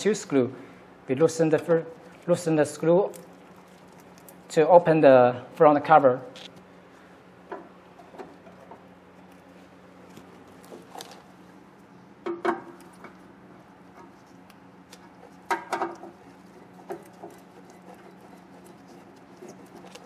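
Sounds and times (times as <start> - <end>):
faint steady hum: 0.0 - 20.0.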